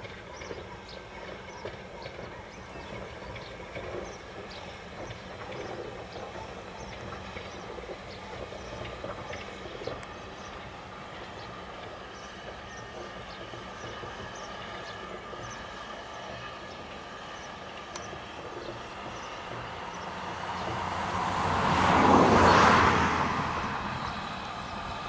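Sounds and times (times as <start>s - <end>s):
steam locomotive rumbling: 0.0s - 25.0s.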